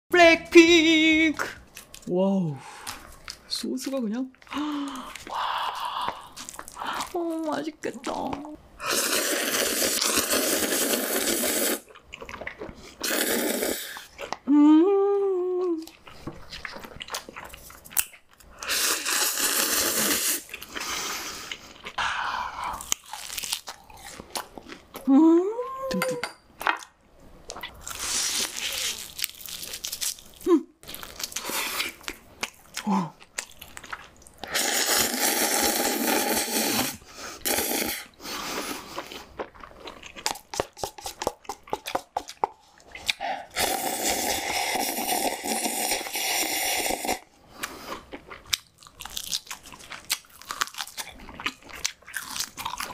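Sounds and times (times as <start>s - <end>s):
chewing: 9.5s - 13.2s, 13.9s - 14.5s, 15.7s - 18.7s, 27.5s - 34.5s, 38.3s - 46.1s, 47.6s - 52.9s.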